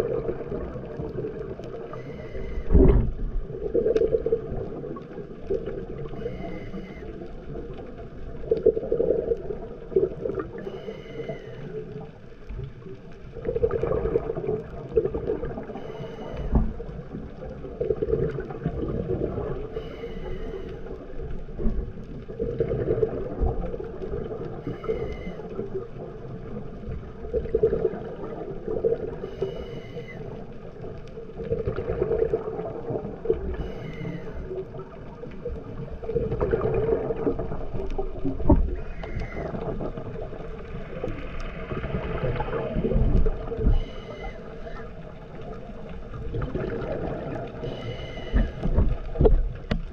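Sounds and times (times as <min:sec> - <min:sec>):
exhaust bubbling underwater: 0:00.0 - 0:49.9
regulator hissing inhale: 0:01.9 - 0:02.7, 0:06.1 - 0:07.2, 0:10.6 - 0:12.0, 0:15.7 - 0:16.7, 0:19.6 - 0:21.0, 0:24.6 - 0:25.6, 0:29.2 - 0:30.5, 0:33.5 - 0:34.7, 0:43.7 - 0:44.9, 0:47.6 - 0:48.7.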